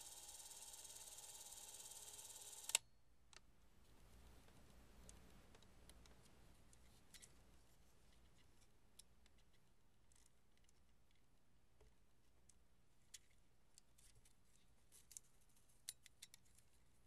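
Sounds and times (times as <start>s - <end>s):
low steady room hum: 0.0s - 17.0s
small clicks of camera parts handled: 5.1s - 7.4s, 13.1s - 16.7s.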